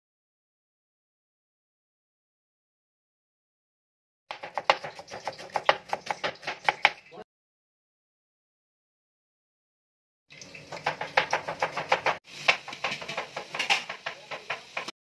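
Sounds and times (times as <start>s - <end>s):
food frying in hot oil: 4.3s - 7.2s, 10.3s - 15.0s.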